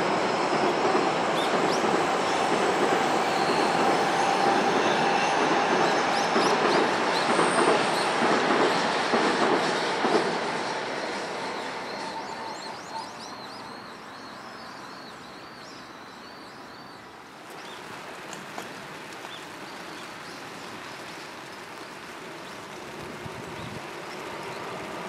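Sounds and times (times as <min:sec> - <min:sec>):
electric train leaving: 0:00.0 - 0:16.4, 0:21.5 - 0:25.0
outdoor hiss: 0:13.8 - 0:25.0.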